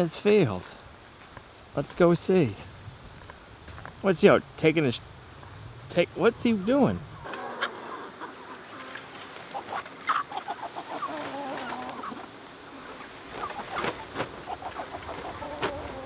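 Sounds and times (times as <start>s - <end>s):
chickens clucking: 6.3s - 16.0s
chicken wavering call: 7.2s - 16.0s.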